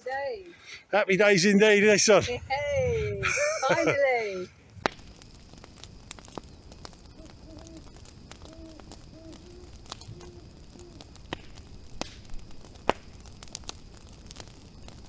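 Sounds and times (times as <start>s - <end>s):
crackling fire: 0.0s - 15.0s
owl hooting: 7.2s - 11.0s.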